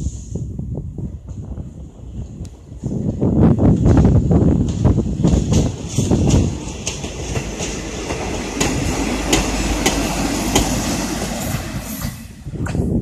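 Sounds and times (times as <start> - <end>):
railcar rumbling past: 0.0 - 13.0
wheels clacking over rail joints: 3.8 - 12.9.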